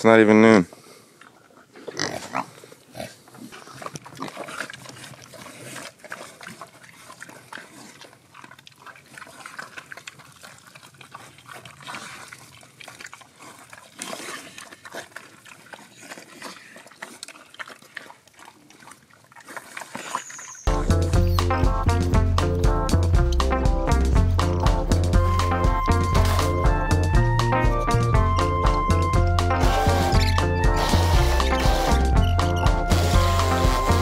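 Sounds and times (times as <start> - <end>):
pigs grunting: 1.8 - 20.4, 29.5 - 34.0.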